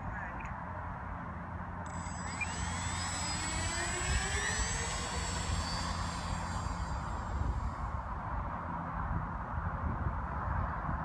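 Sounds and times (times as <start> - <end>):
electric motor propeller whine: 1.8 - 8.9.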